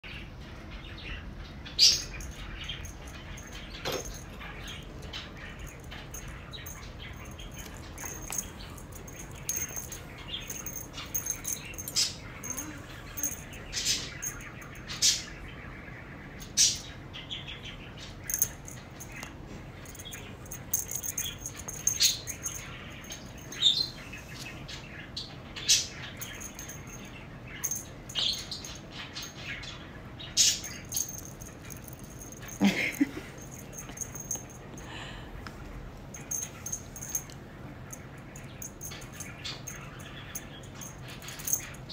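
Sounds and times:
paws and toy scuffing: 2.8 - 14.4.

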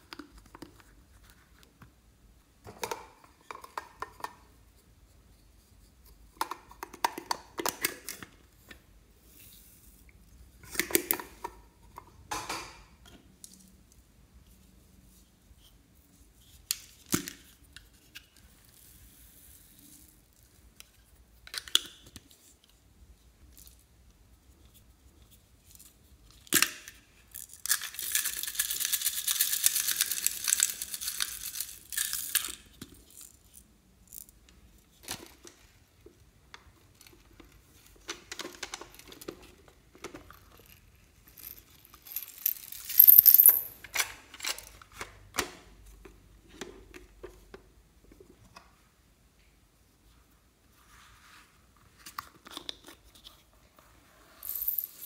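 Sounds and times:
beads rattling poured onto slime: 41.2 - 43.7, 54.4 - 55.0.

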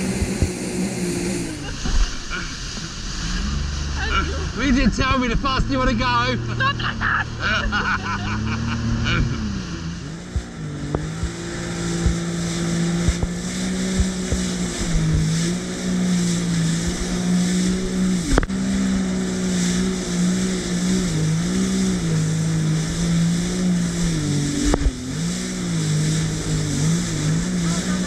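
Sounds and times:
hiss of wind and water: 0.0 - 28.0
jet ski engine running: 0.0 - 28.0.

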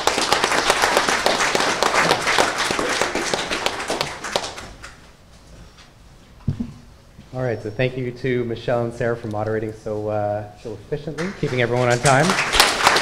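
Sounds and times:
audience applauding: 0.0 - 5.1, 11.2 - 13.0.

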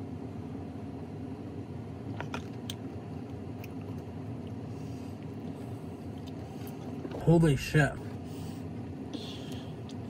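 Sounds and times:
low background hum: 0.0 - 10.0.

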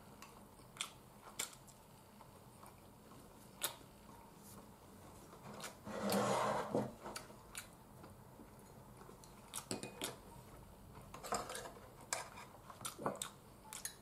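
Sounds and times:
clinking bowls and utensils: 11.2 - 12.5.

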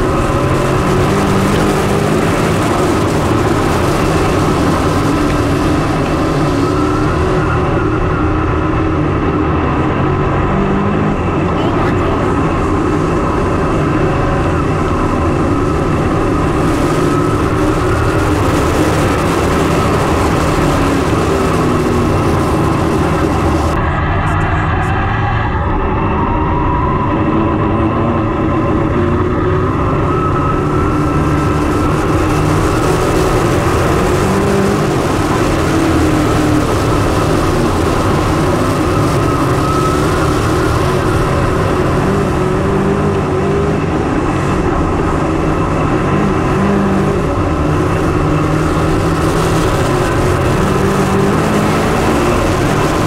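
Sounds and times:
race car engines droning: 0.0 - 53.0.

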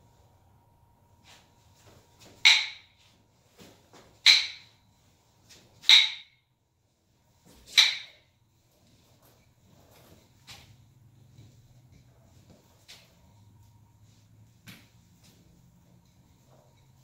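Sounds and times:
nunchaku swishes: 1.2 - 6.4, 7.4 - 17.0.

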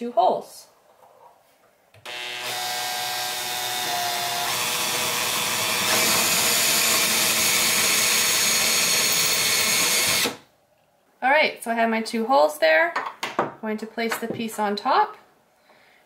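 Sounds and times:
cordless drill boring into wood: 2.0 - 10.4.

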